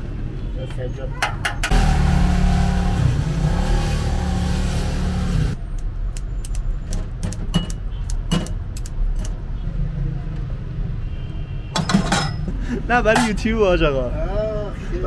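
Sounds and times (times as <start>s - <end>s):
vehicle engine humming: 1.2s - 9.6s.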